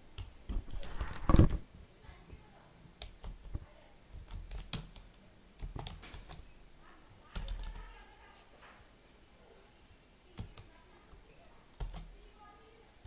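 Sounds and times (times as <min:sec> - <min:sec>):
keyboard typing: 0:00.0 - 0:01.6, 0:03.0 - 0:06.6, 0:07.3 - 0:08.1, 0:10.3 - 0:12.2.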